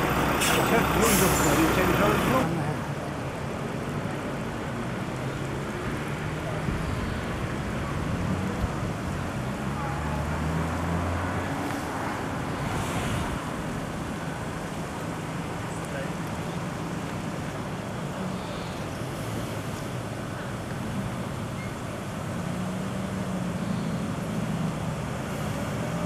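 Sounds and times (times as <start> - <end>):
lorry diesel engine running: 0.0 - 2.8
wind rumbling on microphone: 6.4 - 9.7.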